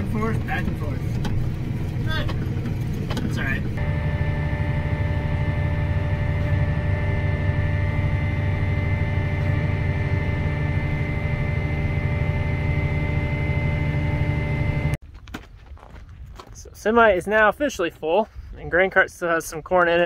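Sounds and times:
tractor engine droning: 0.0 - 15.0.

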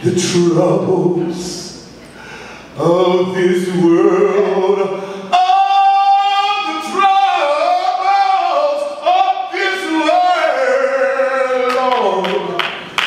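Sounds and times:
man singing into a microphone: 2.8 - 12.6.

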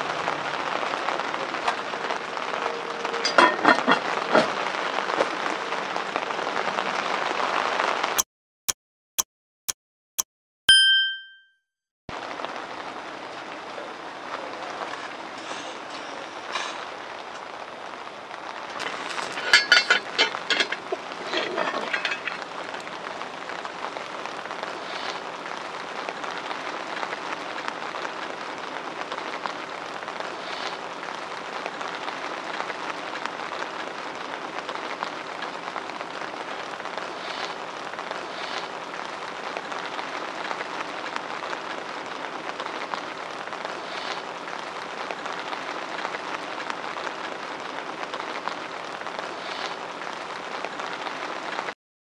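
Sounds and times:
metal lid clanking: 3.2 - 4.5, 18.8 - 22.4
steady crackling hiss: 12.1 - 51.7.

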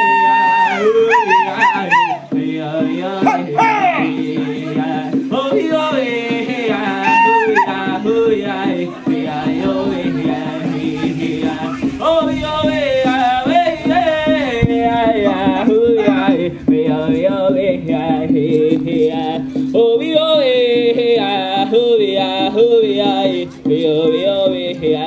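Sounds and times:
group of singers chanting: 0.0 - 19.7
steady drumming: 0.0 - 25.0.

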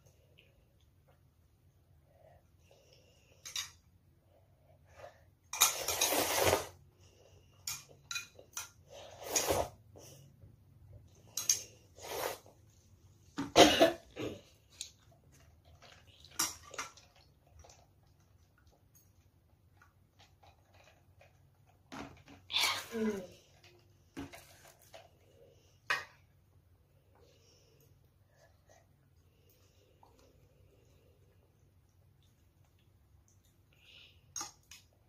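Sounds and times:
child slurping noodles: 5.8 - 6.8, 11.9 - 12.6.

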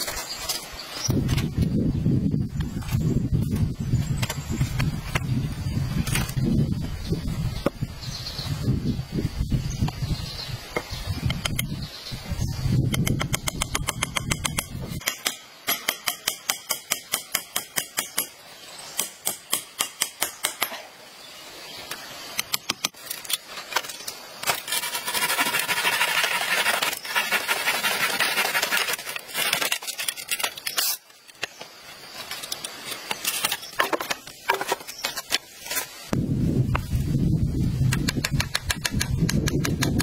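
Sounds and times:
machete chopping bamboo: 13.0 - 18.3
continuous rasping: 24.4 - 31.4.

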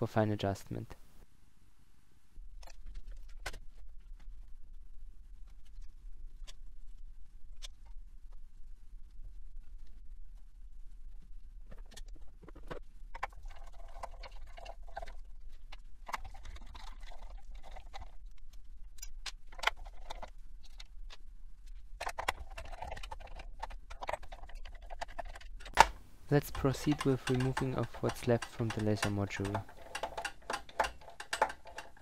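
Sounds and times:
rustling and scraping of parts: 2.5 - 32.0
small clicks and taps: 18.4 - 32.0.

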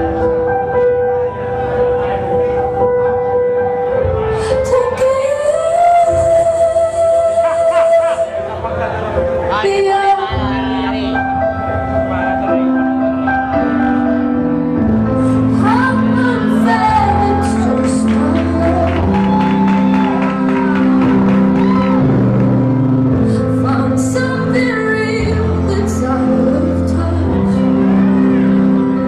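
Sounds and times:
person singing: 4.2 - 8.8, 15.1 - 22.5, 23.1 - 29.0
bass line: 9.6 - 29.0.

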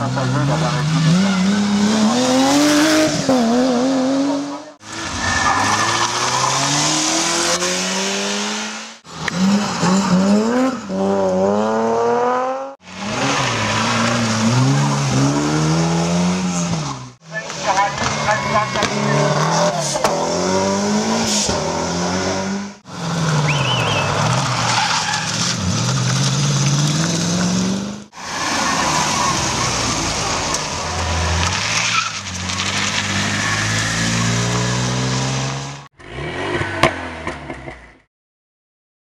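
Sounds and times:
race car engines revving high: 0.0 - 37.4.

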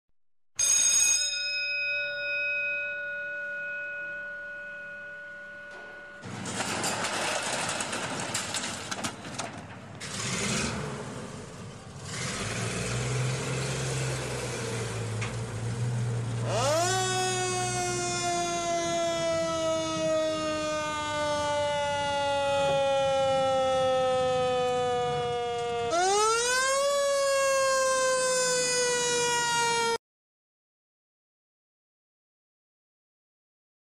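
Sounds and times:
fire engine bell ringing: 0.6 - 7.3
engine humming: 5.1 - 27.5
siren winding: 16.4 - 19.3.

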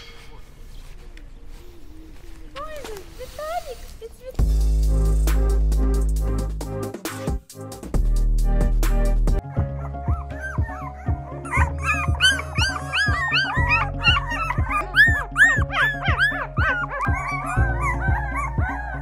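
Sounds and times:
background music with steady beat: 4.4 - 19.0
puppies whimpering and yipping: 9.4 - 19.0.

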